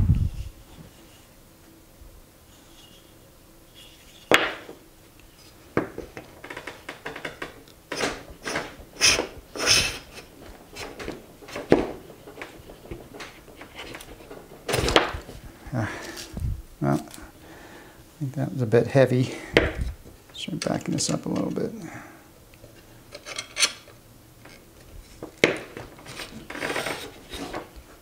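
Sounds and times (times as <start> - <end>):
wooden knocks and clunks: 5.8 - 15.5.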